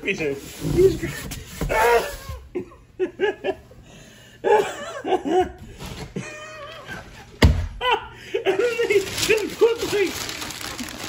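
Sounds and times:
man laughing: 0:01.8 - 0:03.8, 0:04.4 - 0:05.6, 0:06.2 - 0:09.5.

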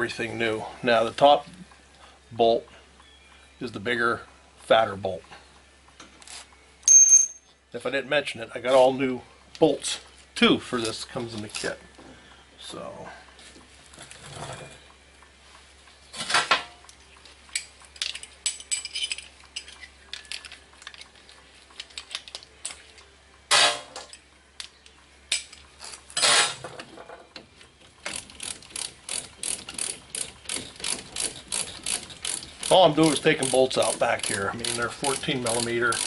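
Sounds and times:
metal tools clanking: 0:17.6 - 0:21.0
hand ratchet clicking: 0:28.0 - 0:36.0.

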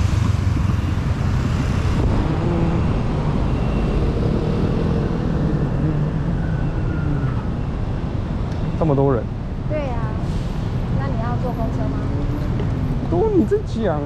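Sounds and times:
motorcycles and cars passing: 0:00.0 - 0:10.2, 0:10.8 - 0:14.0.

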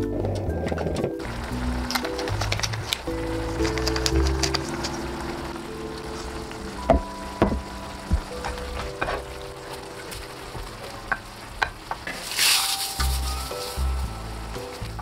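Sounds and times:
food sizzling in a pan: 0:04.7 - 0:15.0.

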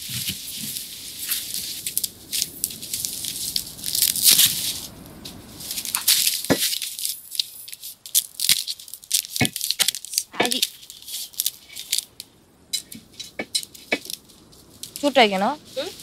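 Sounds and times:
kindling crackling and rustling: 0:00.0 - 0:16.0
sticks and pans knocking: 0:12.8 - 0:14.1.

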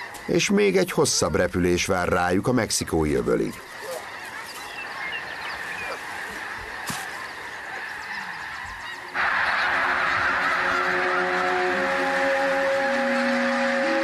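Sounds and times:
geese honking: 0:00.0 - 0:14.0
held music chord: 0:09.7 - 0:14.0.

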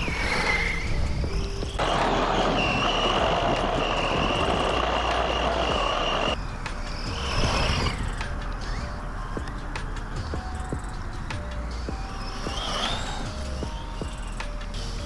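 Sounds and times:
wind rush: 0:00.0 - 0:09.4
rc truck motor whine: 0:00.0 - 0:10.8, 0:11.8 - 0:15.0.

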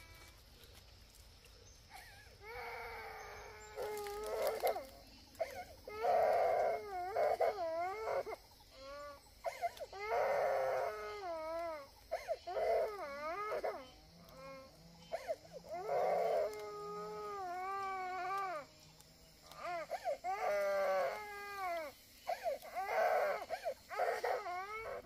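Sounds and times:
young child crying: 0:02.4 - 0:18.6, 0:19.6 - 0:25.0.

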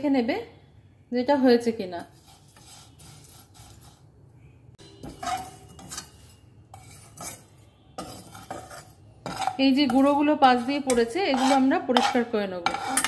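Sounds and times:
steel spoon scraping a pan: 0:01.9 - 0:04.2, 0:04.8 - 0:13.0.

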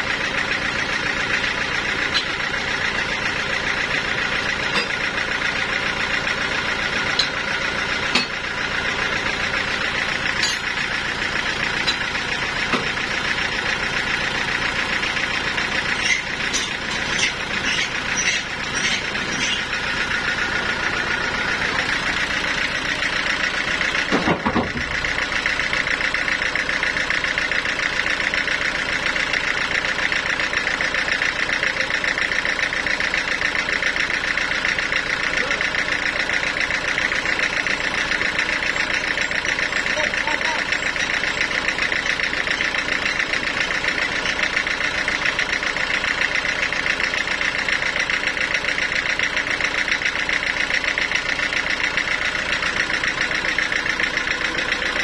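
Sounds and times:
band saw machine hum: 0:00.0 - 0:26.0.

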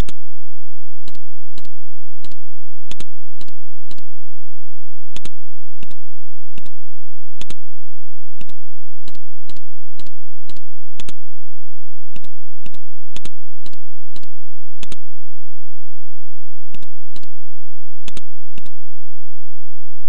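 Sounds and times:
faint steady hum: 0:00.0 - 0:20.0
computer mouse clicking: 0:01.1 - 0:04.0, 0:05.2 - 0:06.0, 0:06.6 - 0:06.8, 0:07.4 - 0:07.6, 0:08.4 - 0:11.2, 0:12.2 - 0:15.0, 0:16.7 - 0:17.3, 0:18.1 - 0:18.8.

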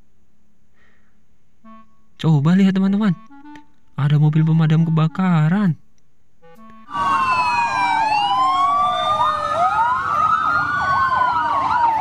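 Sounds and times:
fire engine sirens wailing: 0:06.8 - 0:12.0.

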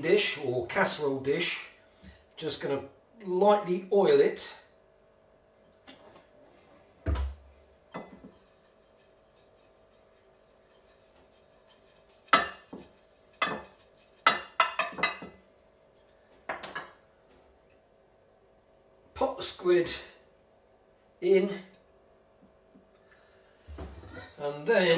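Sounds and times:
utensil knocking ceramic dish: 0:12.3 - 0:15.3.

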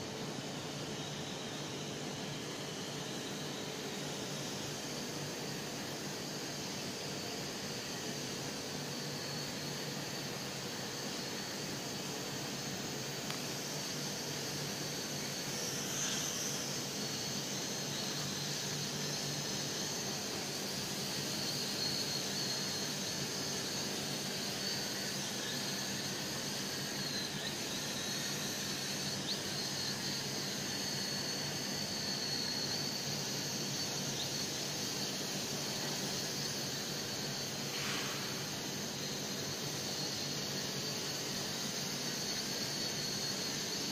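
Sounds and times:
steady hiss: 0:00.0 - 0:43.9.

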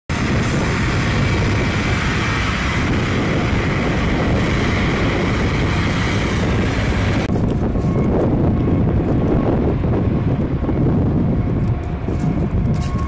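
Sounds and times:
truck engine rumbling: 0:00.1 - 0:13.0.

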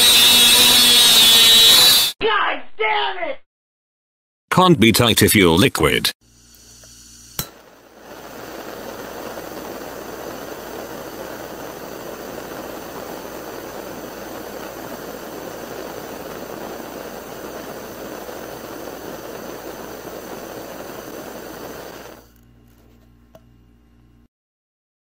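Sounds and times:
torch flame hissing: 0:00.0 - 0:02.2, 0:06.2 - 0:22.4
torch igniter click: 0:06.5 - 0:22.4.

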